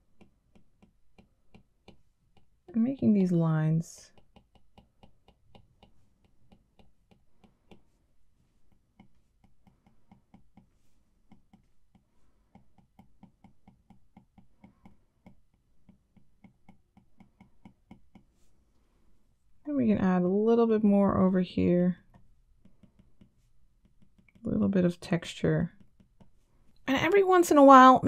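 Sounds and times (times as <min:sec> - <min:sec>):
stylus tapping on glass screen: 0:04.1 - 0:08.0.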